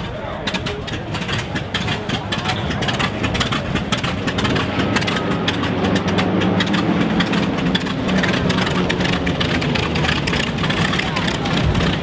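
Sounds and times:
radial aircraft engine running: 0.0s - 12.0s.

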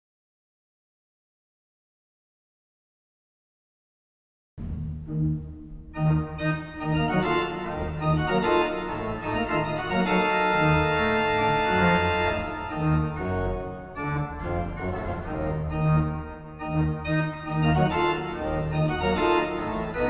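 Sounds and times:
organ playing chords: 4.6s - 20.0s.

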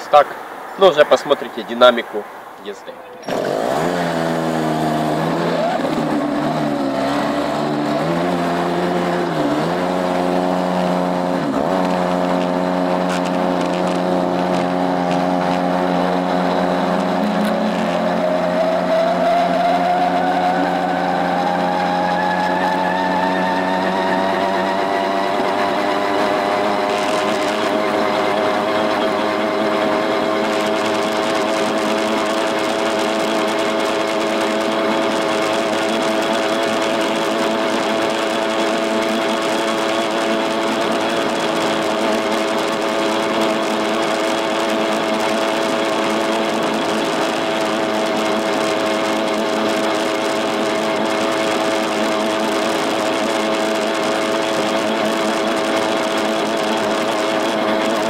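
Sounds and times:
two-stroke engine buzzing: 3.2s - 58.0s.

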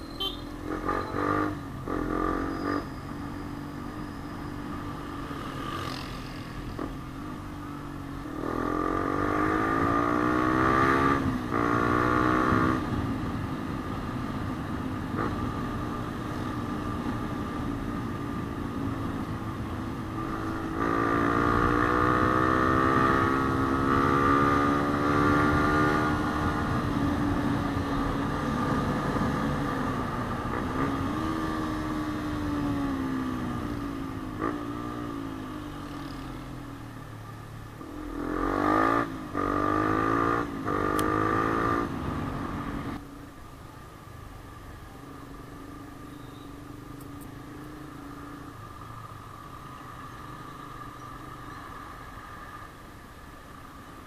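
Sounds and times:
motorcycle engine revving: 0.2s - 3.9s, 7.8s - 13.0s, 19.4s - 36.4s, 37.8s - 43.0s.

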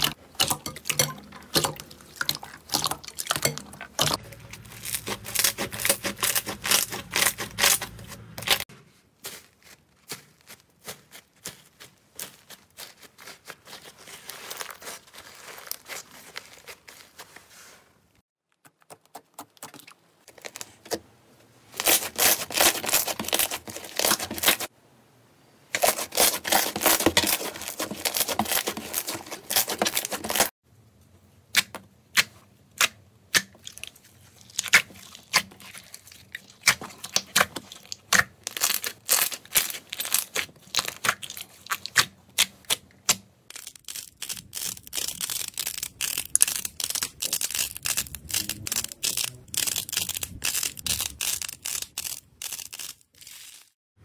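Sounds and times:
slime crumbling: 0.0s - 8.6s, 9.2s - 17.4s, 33.6s - 53.7s
slime crackling and tearing: 1.9s - 17.3s, 21.7s - 24.7s, 25.8s - 30.5s, 33.6s - 53.7s.

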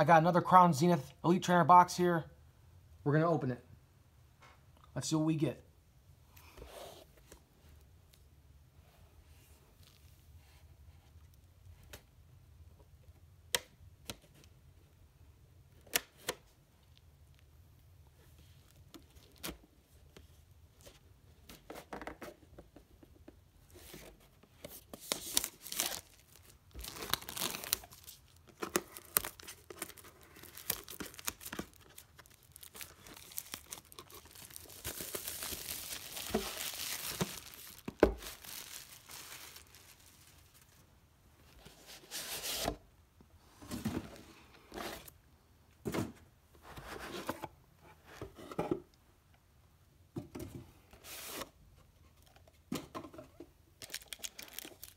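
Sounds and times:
plastic shrink wrap crinkling: 25.0s - 40.8s, 53.8s - 54.9s
plastic wrap tearing: 25.2s - 40.8s, 53.8s - 54.9s.

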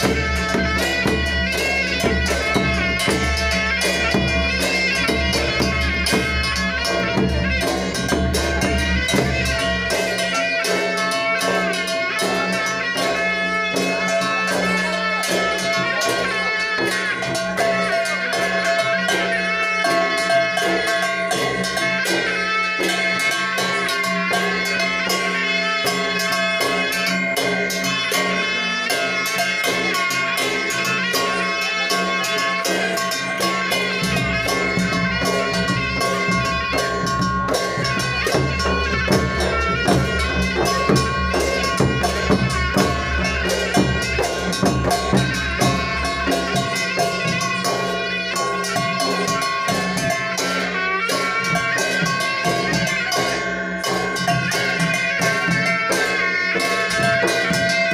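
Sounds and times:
deep heavy drum beat: 34.1s - 47.5s
fast drumming on barrel drums: 34.3s - 47.6s.

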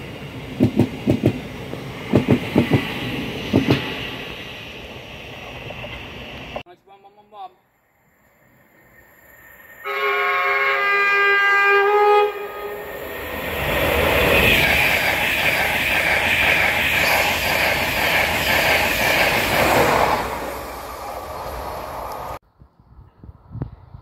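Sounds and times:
passing train rushing: 0.0s - 6.7s, 7.8s - 22.4s
train horn: 9.8s - 13.0s.

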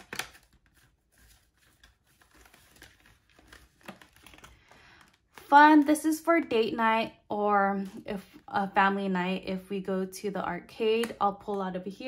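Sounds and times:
paper rustling: 0.0s - 5.5s.

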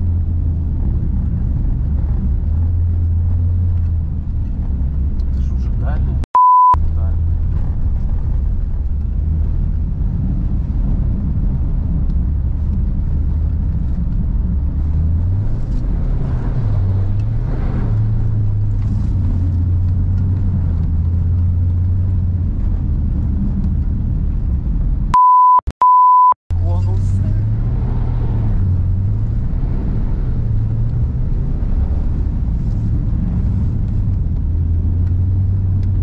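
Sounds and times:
loud steady beep: 6.3s - 6.8s, 25.2s - 26.4s
car engine running under load: 6.8s - 25.2s, 26.5s - 36.0s.

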